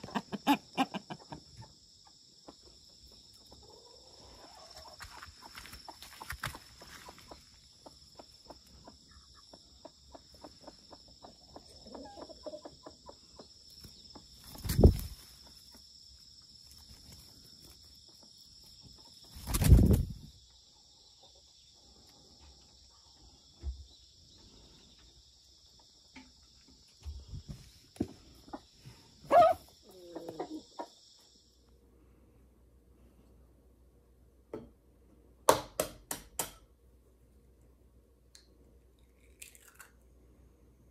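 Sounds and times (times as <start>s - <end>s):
hen flapping wings: 19.4s - 20.2s.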